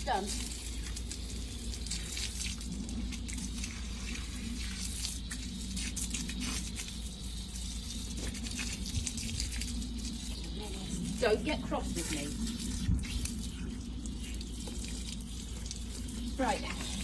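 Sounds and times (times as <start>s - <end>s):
hose spraying water on fleece: 0.0s - 17.0s
water dripping: 0.0s - 17.0s.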